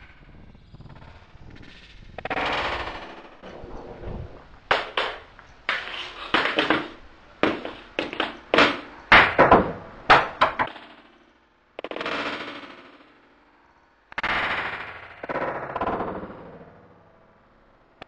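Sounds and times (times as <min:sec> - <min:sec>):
hockey stick striking puck: 0:04.7 - 0:10.8
puck hitting wall: 0:04.7 - 0:10.8.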